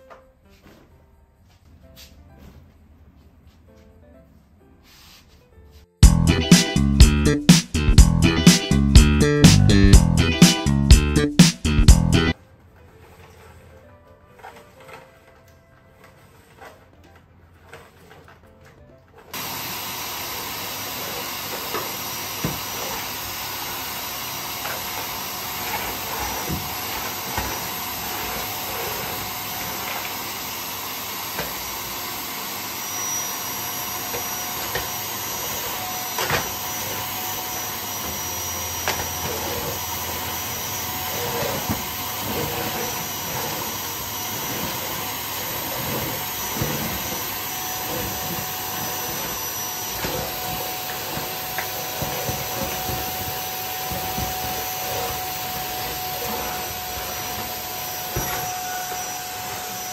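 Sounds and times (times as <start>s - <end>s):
vacuum cleaner running: 6.0s - 12.4s, 19.2s - 59.9s.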